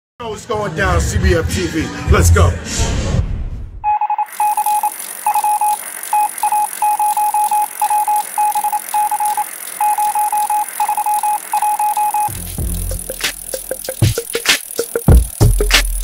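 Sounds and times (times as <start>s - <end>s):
high electronic beeping: 3.8s - 16.0s.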